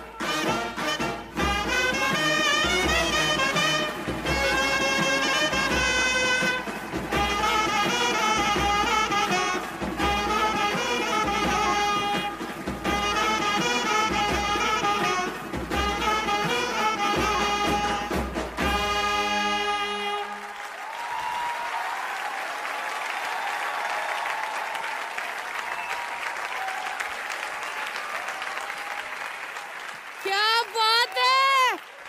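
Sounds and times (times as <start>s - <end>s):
brass band playing with drums: 0.0s - 21.0s
audience applauding and cheering: 0.0s - 32.0s.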